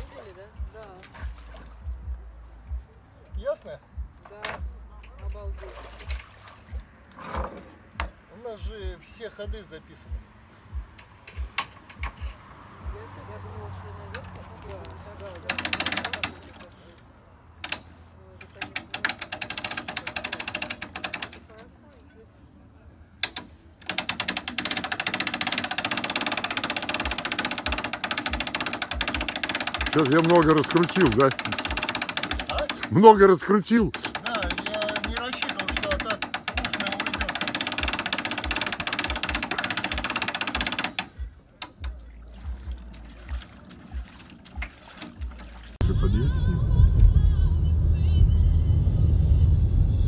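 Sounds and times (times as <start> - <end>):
hand winch ratchet clicking: 15.4 - 16.7, 17.6 - 17.9, 18.5 - 21.6, 23.2 - 33.1, 33.9 - 42.0.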